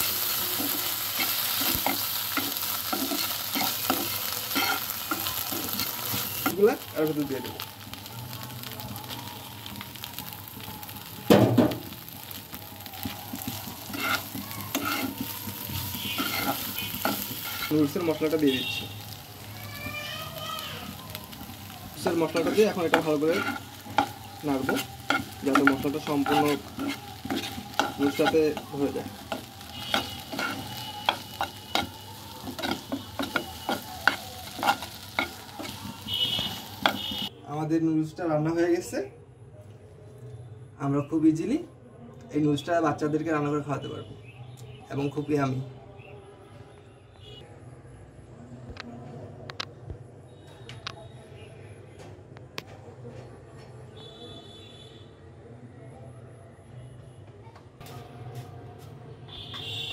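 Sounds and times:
frying pan sizzling: 0:00.0 - 0:37.3
metal spatula scraping pan: 0:00.6 - 0:06.5, 0:13.9 - 0:15.3, 0:15.9 - 0:17.8, 0:22.3 - 0:28.6, 0:29.3 - 0:31.9, 0:32.5 - 0:37.3.

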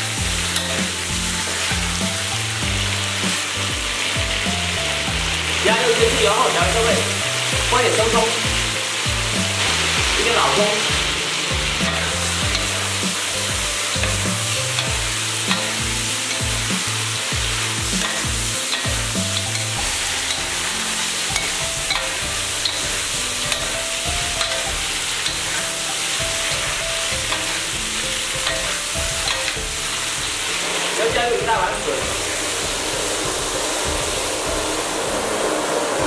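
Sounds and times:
spatula scraping a wok: 0:00.0 - 0:05.6, 0:10.8 - 0:31.0
meat sizzling in hot oil: 0:00.0 - 0:36.0.

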